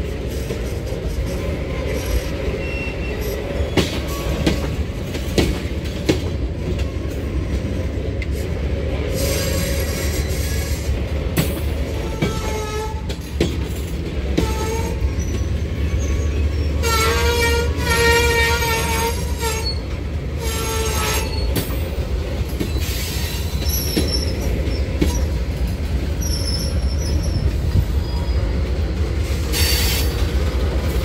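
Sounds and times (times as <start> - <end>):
train rumbling: 0.0 - 31.0
wheel squeal: 1.9 - 4.4, 14.5 - 17.2, 22.6 - 25.4, 26.2 - 28.5.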